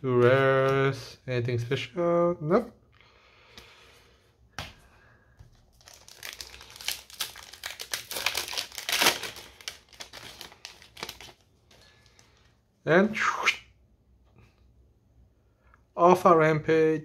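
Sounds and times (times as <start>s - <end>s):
wrapper crinkling: 5.6s - 12.5s
wrapper tearing open: 5.7s - 12.3s.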